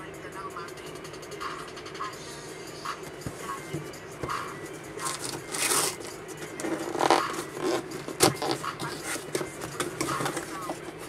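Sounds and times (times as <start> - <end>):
cardboard flaps rustling: 5.0 - 11.0.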